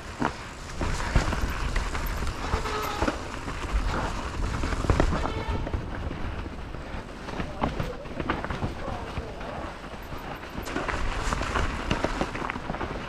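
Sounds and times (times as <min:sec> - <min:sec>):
mountain bike rolling on rough trail: 0:00.0 - 0:13.0.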